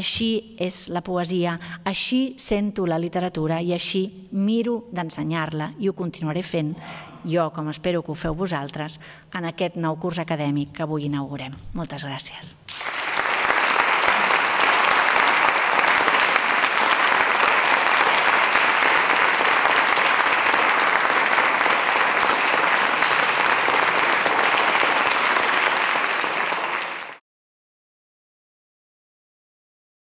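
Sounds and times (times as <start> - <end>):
audience applauding: 12.7 - 27.2.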